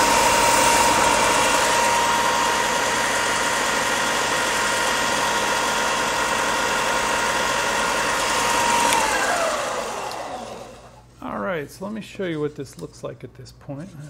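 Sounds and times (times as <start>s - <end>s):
motor winding down: 0.0s - 11.1s
belt sander running: 0.0s - 11.2s.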